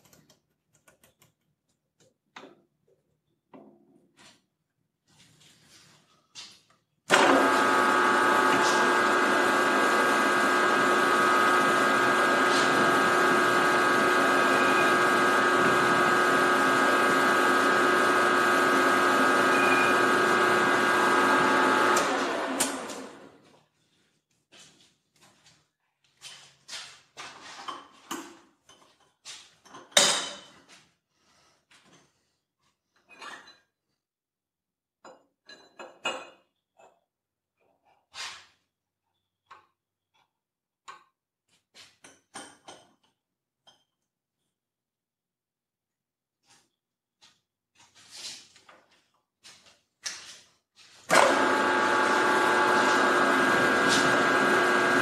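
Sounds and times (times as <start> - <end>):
milling machine spindle whine: 7.2 - 22.3, 51.1 - 55.0.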